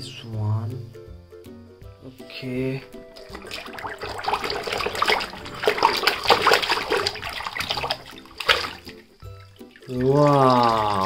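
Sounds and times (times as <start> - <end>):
water splashing in pool: 2.8 - 11.0.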